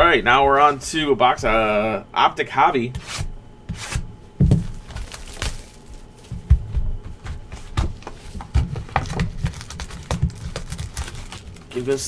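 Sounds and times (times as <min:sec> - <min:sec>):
dull thumps: 0:04.4 - 0:10.9.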